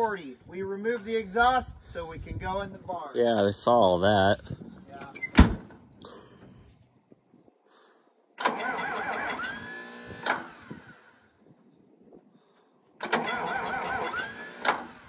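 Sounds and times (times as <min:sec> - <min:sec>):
tractor starter cranking diesel engine: 0:08.4 - 0:11.2, 0:13.0 - 0:15.0.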